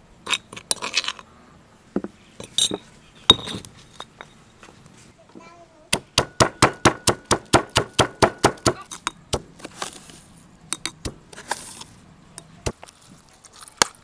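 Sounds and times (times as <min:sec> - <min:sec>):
stone pestle pounding in mortar: 0:06.0 - 0:09.5.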